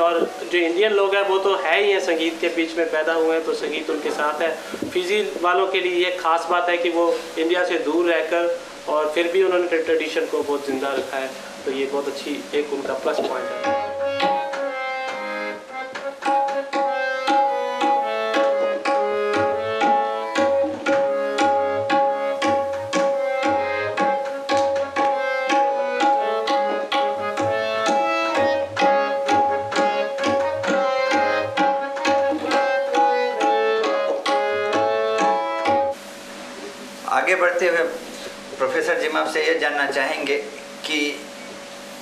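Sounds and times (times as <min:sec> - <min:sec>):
harmonium melody: 0:12.2 - 0:36.0
tabla strokes: 0:16.0 - 0:35.9.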